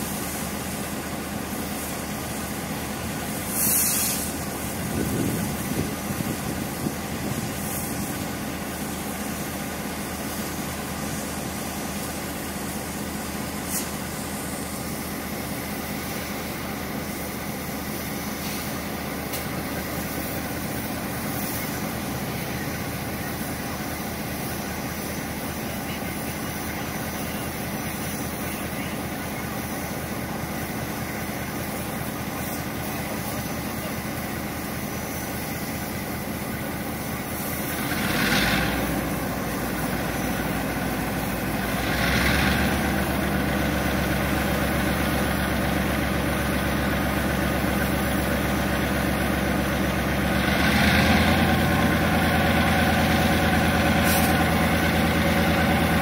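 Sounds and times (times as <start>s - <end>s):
diesel locomotive engine idling: 0.0s - 56.0s
short hiss: 1.5s - 4.8s, 7.6s - 22.0s, 53.8s - 54.9s.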